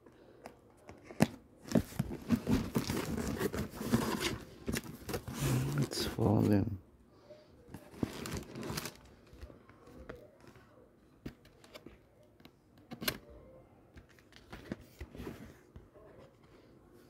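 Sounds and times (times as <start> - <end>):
tissue paper rustling: 1.7 - 6.2, 7.8 - 9.6.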